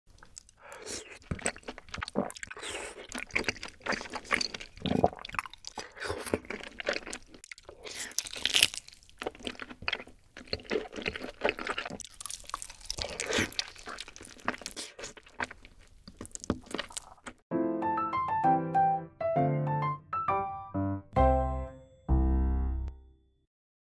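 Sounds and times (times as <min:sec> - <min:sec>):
biting into chicken: 0:00.1 - 0:17.4
wet sticky chewing: 0:00.1 - 0:17.4.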